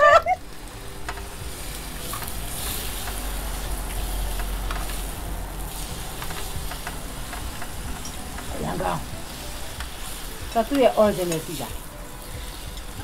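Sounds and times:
pork sizzling on grill pan: 0:00.0 - 0:13.0.

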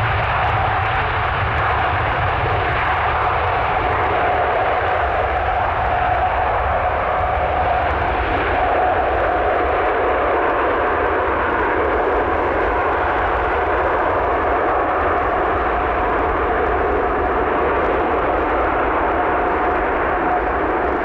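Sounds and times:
jet engines running: 0:00.0 - 0:21.0.

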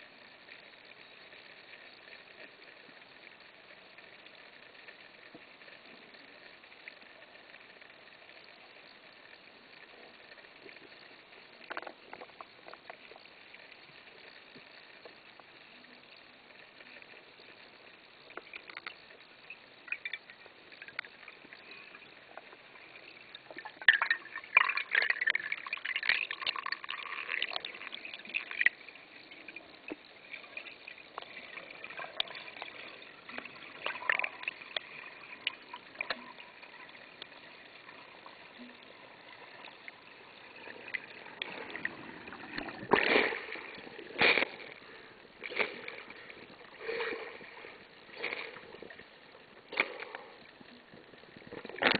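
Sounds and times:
clicks and crackles: 0:00.5 - 0:15.9, 0:16.5 - 0:51.9
water splashes: 0:18.4 - 0:51.9.

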